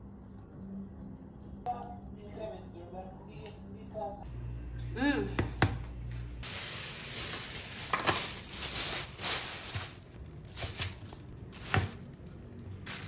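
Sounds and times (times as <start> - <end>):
plastic bag crinkling: 6.4 - 13.0.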